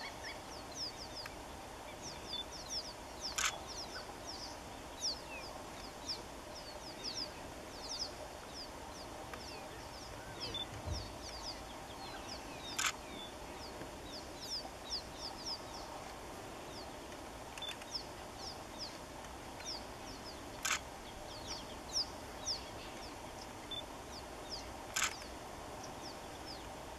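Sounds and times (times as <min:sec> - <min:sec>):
birds chirping: 0:00.0 - 0:26.9
camera shutter clicking: 0:12.8 - 0:13.0, 0:20.6 - 0:20.8, 0:25.0 - 0:25.2.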